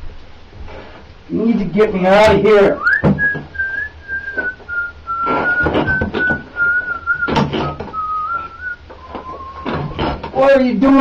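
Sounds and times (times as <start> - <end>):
person whistling long note: 2.8 - 10.0
soft knocks and shuffles: 4.2 - 10.4.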